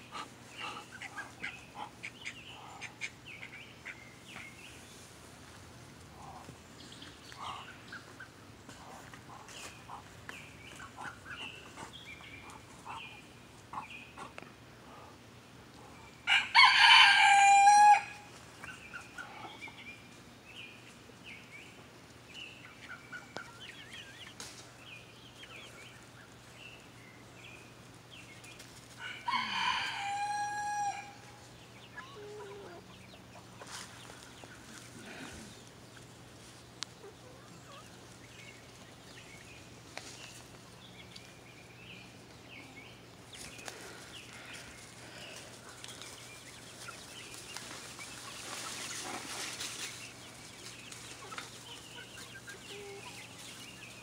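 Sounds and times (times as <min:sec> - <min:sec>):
rooster crowing: 0:16.3 - 0:18.3, 0:29.0 - 0:31.2.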